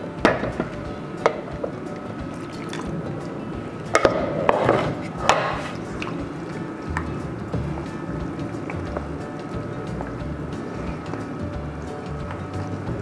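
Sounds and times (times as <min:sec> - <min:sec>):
water pouring into a pan: 0:02.3 - 0:03.1.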